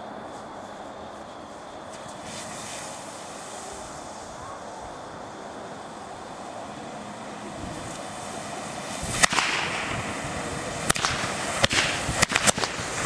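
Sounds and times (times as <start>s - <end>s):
rushing hiss of flame: 0.2s - 13.0s
sharp cracks: 8.9s - 13.0s.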